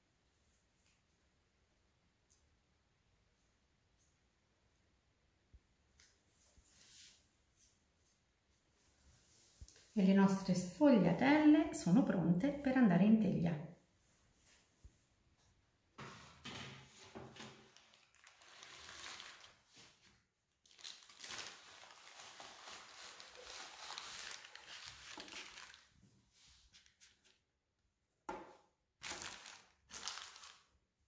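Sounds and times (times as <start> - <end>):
baking paper rustling: 16.2 - 27.4, 29.0 - 30.8.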